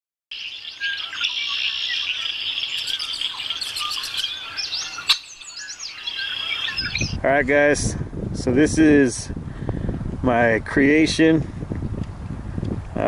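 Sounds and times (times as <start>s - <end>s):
birds chirping and singing: 0.3s - 7.2s.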